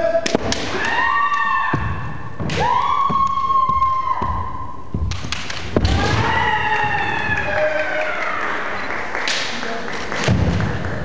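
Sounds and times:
long drawn-out shouts: 0.0s - 4.5s, 5.9s - 8.7s
feet stamping on wooden floor: 1.7s - 6.4s.

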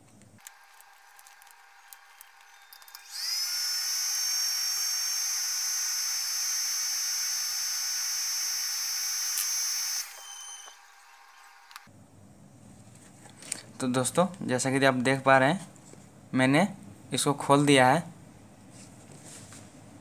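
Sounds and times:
small electric motor whining: 0.4s - 11.9s.

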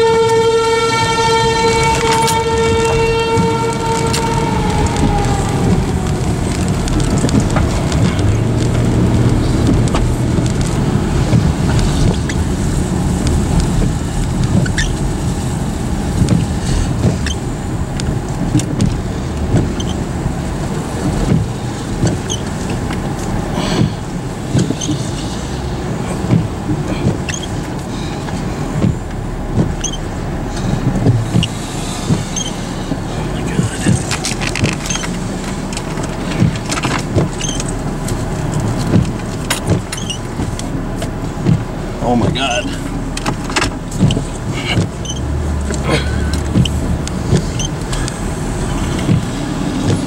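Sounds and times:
car driving on wet road: 0.0s - 50.0s
rain ticking on car: 0.0s - 50.0s.

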